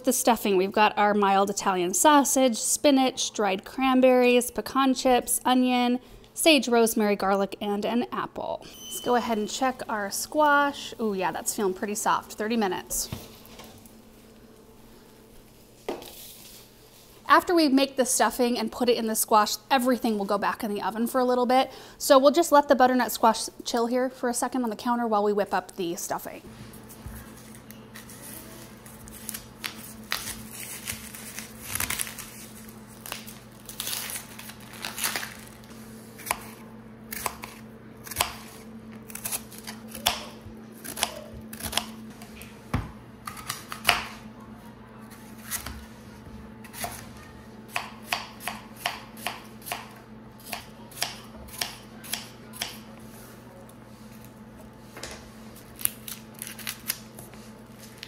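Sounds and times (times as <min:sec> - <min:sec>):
steady low hum: 0:00.0 - 0:58.0
knife chopping on wooden board: 0:47.7 - 0:49.9.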